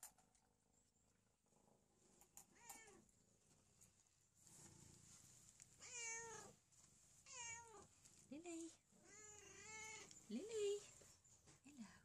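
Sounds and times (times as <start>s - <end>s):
cat meowing: 5.8s - 6.5s, 7.3s - 7.9s, 9.0s - 10.1s.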